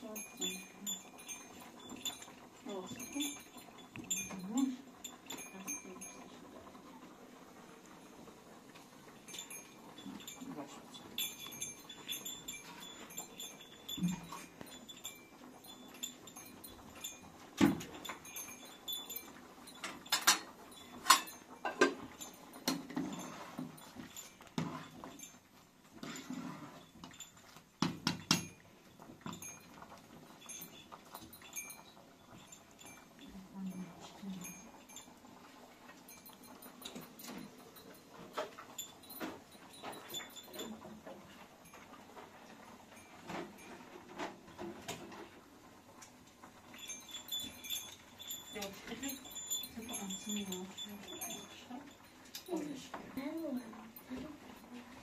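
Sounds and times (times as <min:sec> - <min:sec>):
spoon scraping pot: 0:21.0 - 0:25.2, 0:25.9 - 0:27.1.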